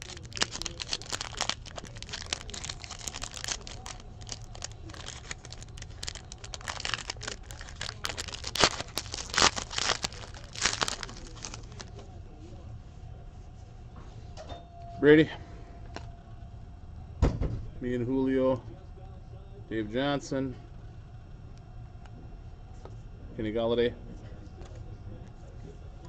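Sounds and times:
foil wrapper crackling: 0.0 - 12.0.

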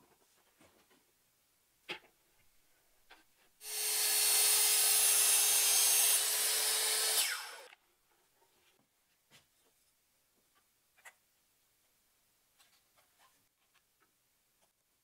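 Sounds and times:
circular saw cutting wood: 3.6 - 7.8.

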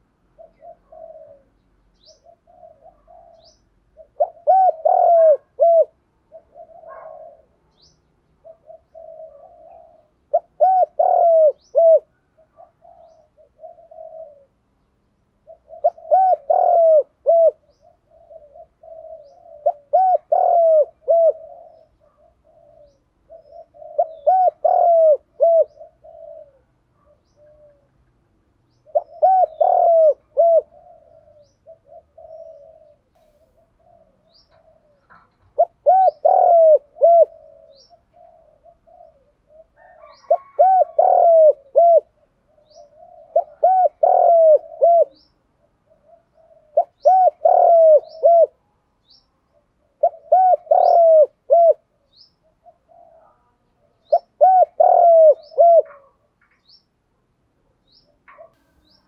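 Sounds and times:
dove cooing: 0.0 - 28.1, 28.7 - 56.7, 57.6 - 59.0.

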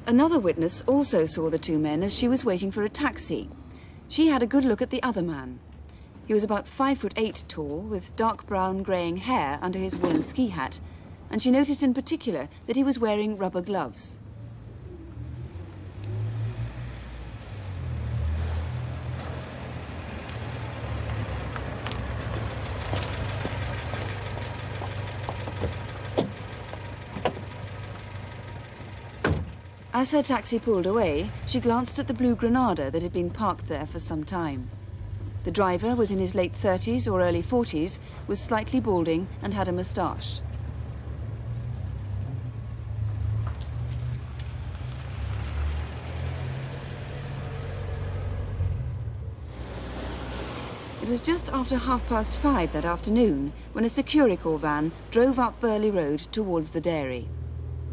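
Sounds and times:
tyre and road noise: 0.0 - 57.9
car engine hum: 14.2 - 57.9
car engine idling: 21.4 - 32.0.

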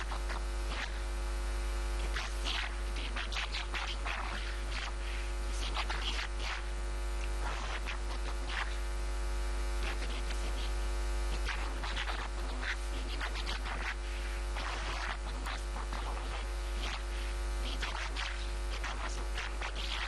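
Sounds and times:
low mains hum: 0.0 - 20.0
scratchy noises: 0.0 - 20.0.

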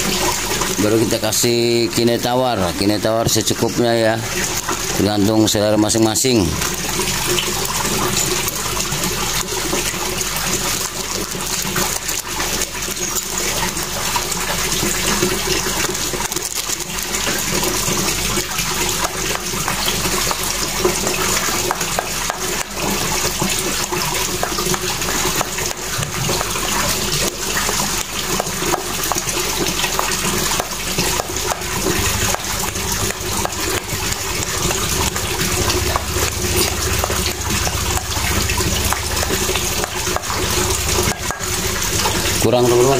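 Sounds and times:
running water rushing: 0.0 - 42.9
spoon stirring dough in metal bowl: 14.2 - 42.6.

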